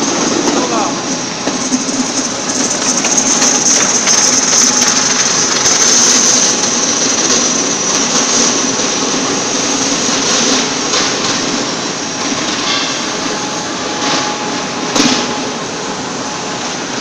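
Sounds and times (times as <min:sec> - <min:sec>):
gear motor running with whine: 0:01.6 - 0:11.3.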